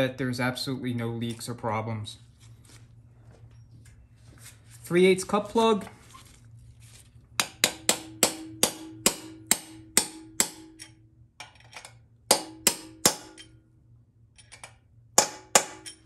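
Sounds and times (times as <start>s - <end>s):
hammer tapping metal driver: 7.4s - 11.0s, 12.3s - 13.6s.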